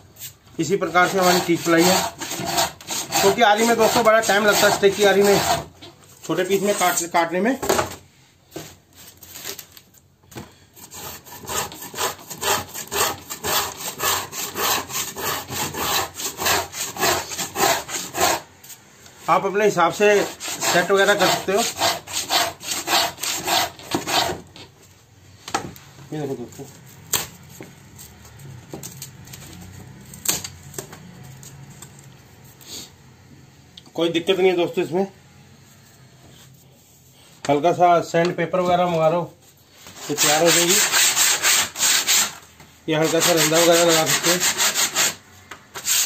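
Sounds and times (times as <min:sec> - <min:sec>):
marking gauge scraping wood: 0:01.0 - 0:05.9, 0:10.8 - 0:18.4, 0:20.1 - 0:24.4.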